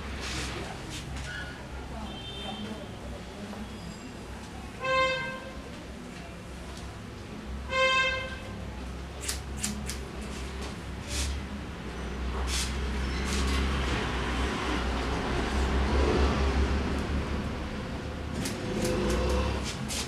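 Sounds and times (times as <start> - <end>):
scissors snipping: 9.2 - 10.0, 18.4 - 19.4.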